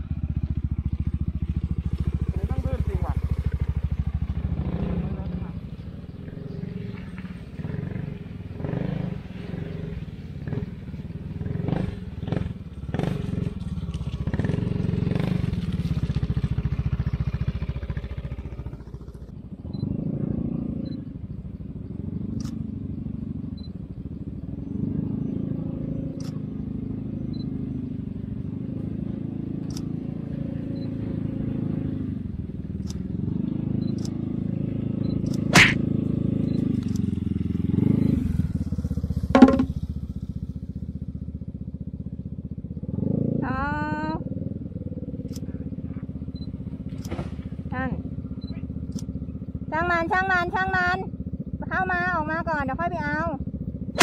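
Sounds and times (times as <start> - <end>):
scooter engine labouring: 0.0 - 54.0
sharp click: 35.2 - 35.8, 48.9 - 49.1
knocks and clatter: 39.3 - 39.8.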